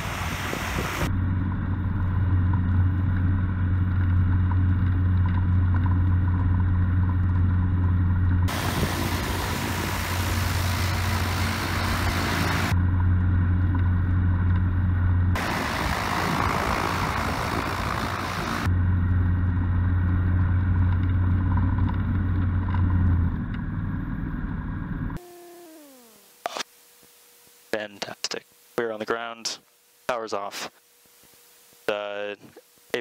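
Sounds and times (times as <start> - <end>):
propeller aircraft engine droning: 0.0 - 26.4.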